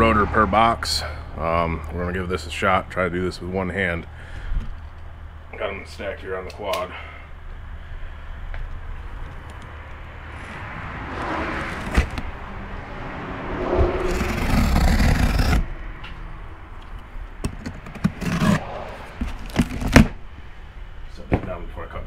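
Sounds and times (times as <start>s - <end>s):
cardboard rubbing and scraping: 11.6s - 12.2s, 13.9s - 15.7s, 17.4s - 20.2s
cardboard rasping stretch: 13.9s - 15.7s, 17.4s - 20.2s.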